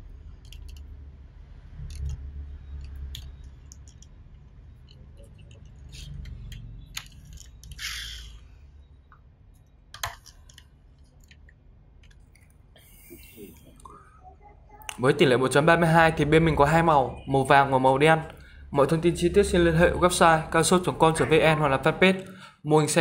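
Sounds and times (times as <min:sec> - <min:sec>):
toy car clicking and rolling: 0:00.3 - 0:01.0, 0:01.8 - 0:08.4.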